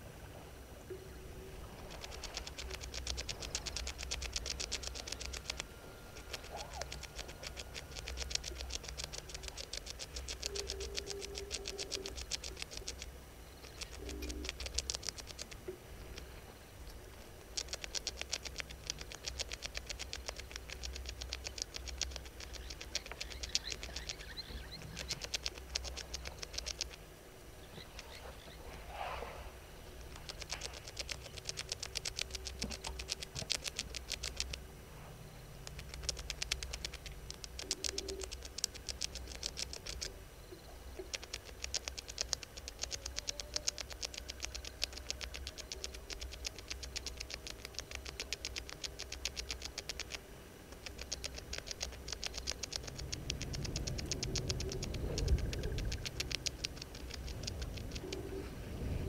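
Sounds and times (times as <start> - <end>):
rapid high-pitched clicking: 1.8 - 16.3, 17.4 - 27.0, 30.1 - 34.6, 35.6 - 40.2, 40.9 - 58.3
low rumble: 53.0 - 59.0.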